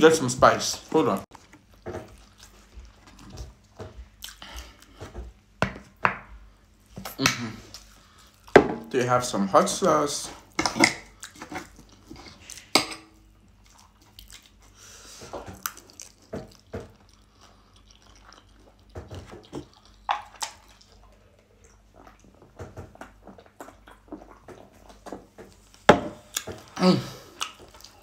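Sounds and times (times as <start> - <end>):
chewing: 1.4 - 5.0, 13.5 - 28.0.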